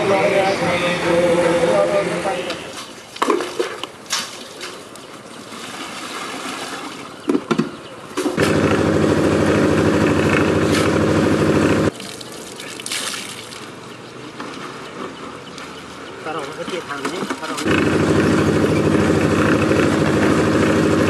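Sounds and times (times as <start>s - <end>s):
water splashing in buckets: 2.7s - 7.5s, 11.9s - 13.8s
concrete mixer engine running: 8.2s - 11.9s, 16.6s - 21.0s.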